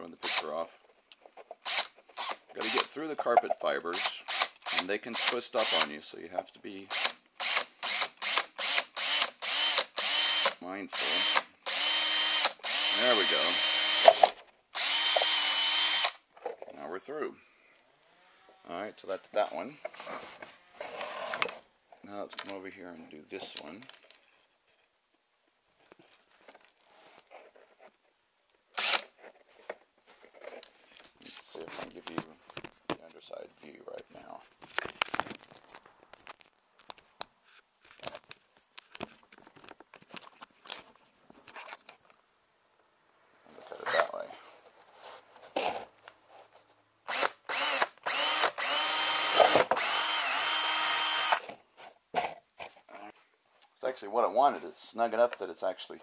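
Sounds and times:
drill bit ripping into carpet: 0.2s - 0.5s, 1.6s - 3.0s, 4.0s - 5.9s, 6.9s - 16.2s, 28.8s - 29.2s, 47.1s - 51.5s.

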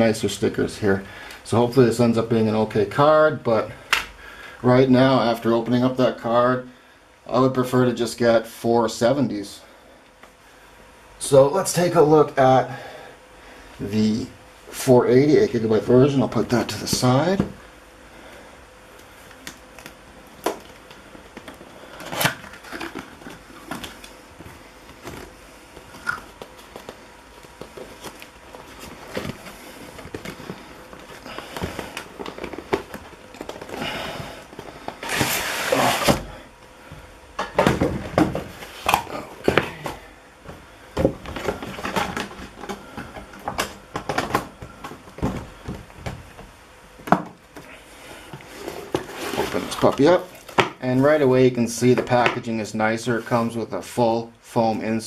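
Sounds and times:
cardboard sliding rustle: 27.6s - 36.3s, 48.4s - 50.5s.

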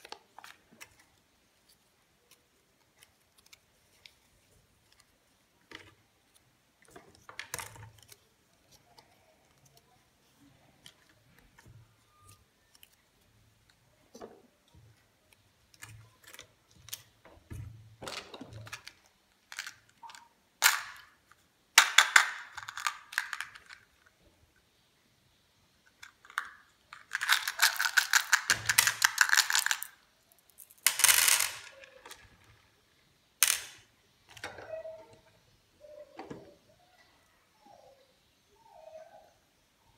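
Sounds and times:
puzzle pieces clicking: 18.2s - 21.2s, 21.8s - 23.9s, 26.0s - 32.2s, 33.4s - 33.8s
candy packet crinkling and tearing: 26.2s - 30.8s.

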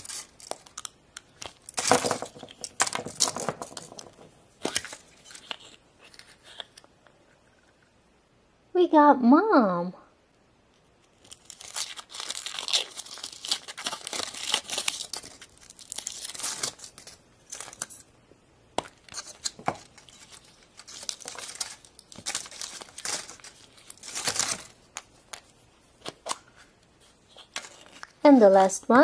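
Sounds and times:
foil wrapper crinkling and tearing: 0.0s - 4.1s, 11.0s - 18.0s, 18.9s - 25.4s.

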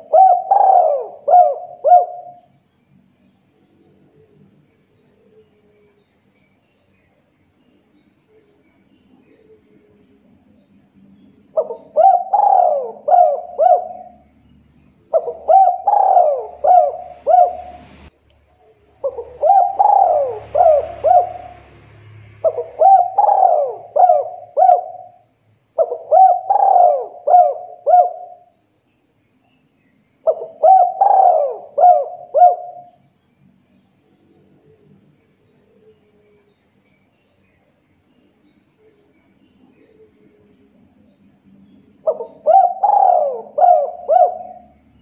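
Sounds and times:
dove cooing: 0.0s - 2.5s, 11.5s - 14.3s, 15.0s - 18.1s, 18.9s - 25.2s, 25.8s - 28.5s, 30.2s - 33.0s, 42.0s - 45.0s.

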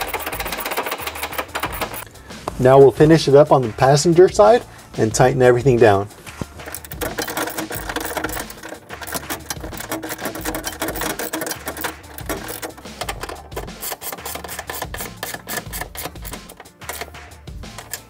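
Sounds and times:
ratchet wrench clicking: 0.0s - 2.1s, 6.6s - 18.0s.

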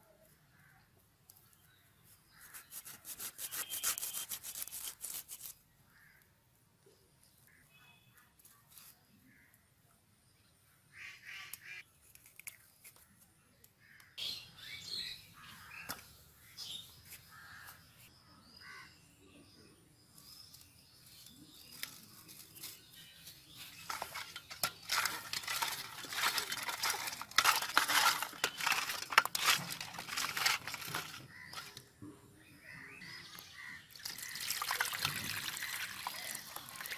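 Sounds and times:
hands rubbing salt into fish: 2.5s - 5.6s.

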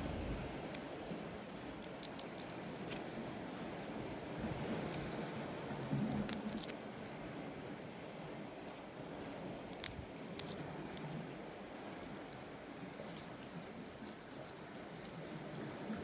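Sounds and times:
low background wash: 0.0s - 16.0s.

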